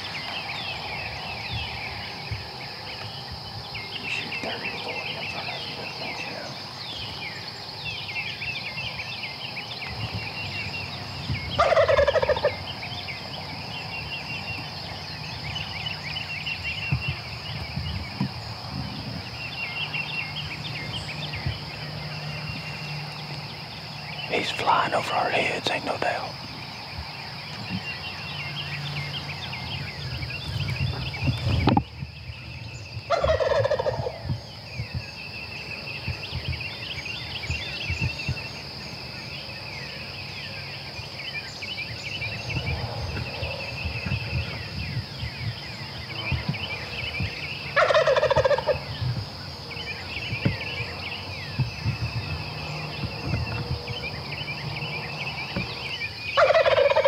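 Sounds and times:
small birds chirping: 0.0 - 57.0
turkey gobbling: 11.6 - 12.6, 33.1 - 34.2, 47.8 - 48.8, 56.4 - 57.0.

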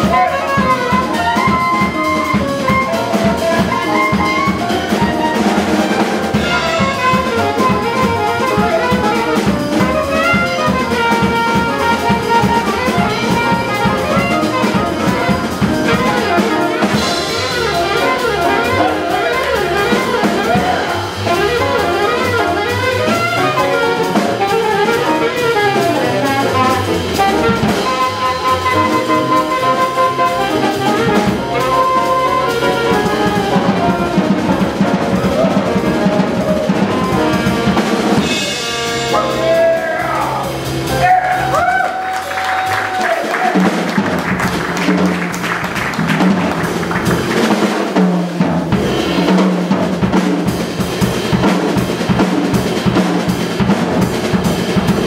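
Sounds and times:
saxophone melody: 0.0 - 42.8
drum kit: 0.0 - 55.0
grand piano: 0.0 - 55.0
upright bass: 0.0 - 55.0.

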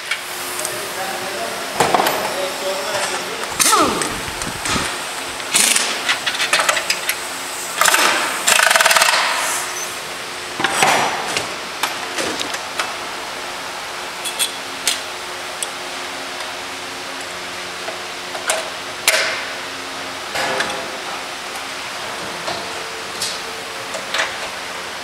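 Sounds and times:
steady low hum: 0.0 - 8.5
pneumatic impact wrench rattling: 3.5 - 9.9.

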